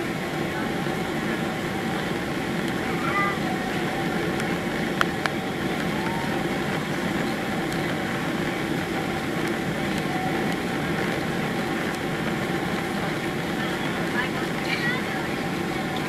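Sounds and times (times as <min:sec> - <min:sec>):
airliner cabin roar: 0:00.0 - 0:16.0.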